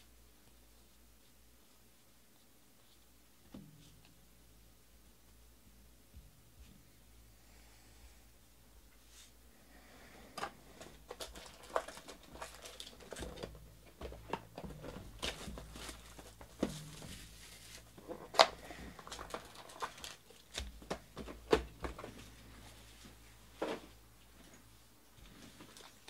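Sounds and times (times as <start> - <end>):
foil packs crinkling: 10.8 - 22.1.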